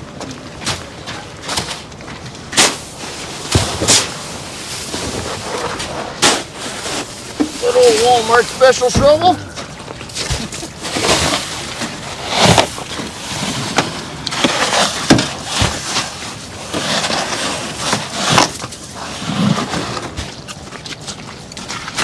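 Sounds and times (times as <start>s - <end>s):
snow shovel scraping and crunching: 2.5s - 9.6s, 10.2s - 20.2s.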